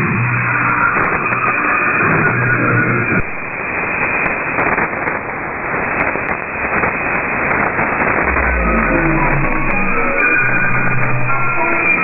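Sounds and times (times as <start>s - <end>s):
shortwave radio static hiss: 2.6s - 12.0s
low tone of broadcast music: 8.2s - 12.0s.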